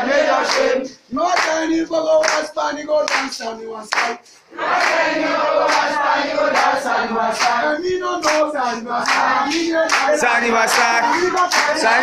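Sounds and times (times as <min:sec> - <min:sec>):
group singing: 0:00.0 - 0:12.0
hands clapping on the beat: 0:00.2 - 0:12.0.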